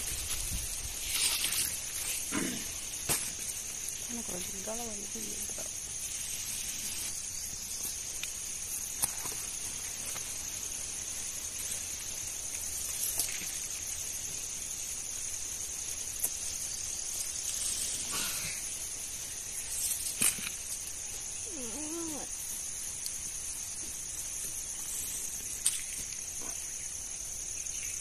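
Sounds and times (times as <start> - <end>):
hands rustling vines: 0.0 - 3.8, 16.1 - 22.2
insects chirring: 0.0 - 28.0.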